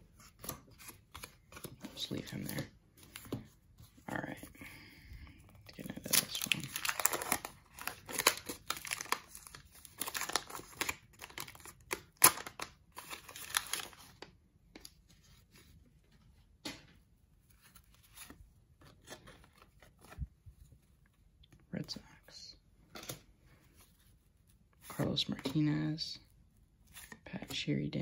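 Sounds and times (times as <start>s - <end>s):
cards rustling and clicking: 0.0s - 4.5s, 5.3s - 15.8s, 16.6s - 22.2s
wrapper tearing and crinkling: 5.8s - 14.3s.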